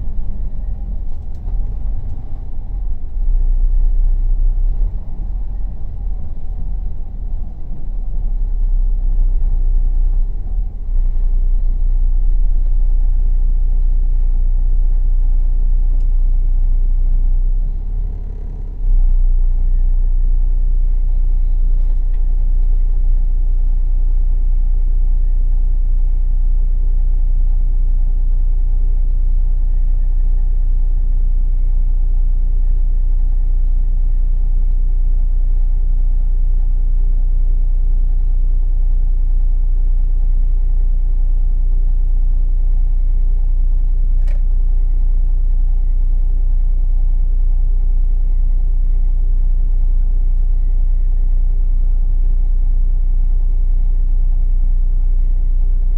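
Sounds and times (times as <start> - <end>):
diesel engine idling: 0.0 - 55.9
faint click: 21.8 - 22.7, 44.2 - 44.6.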